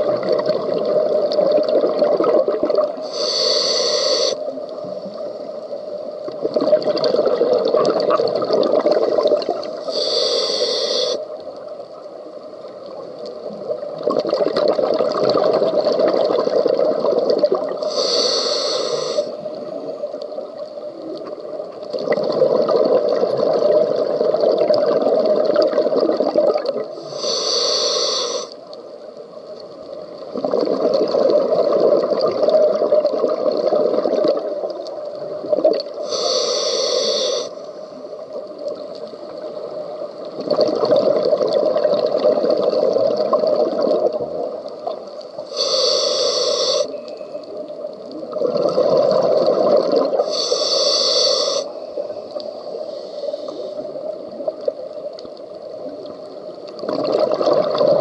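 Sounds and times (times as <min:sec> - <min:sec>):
exhaled bubbles: 0:00.0 - 0:03.4, 0:06.3 - 0:11.2, 0:13.5 - 0:19.8, 0:21.1 - 0:27.2, 0:30.2 - 0:36.1, 0:40.2 - 0:45.8, 0:48.1 - 0:52.4, 0:55.8 - 0:58.0
hissing regulator inhales: 0:03.0 - 0:04.5, 0:09.8 - 0:11.2, 0:17.8 - 0:19.4, 0:27.0 - 0:28.6, 0:36.0 - 0:37.7, 0:45.4 - 0:47.0, 0:50.2 - 0:52.0, 0:52.6 - 0:53.9.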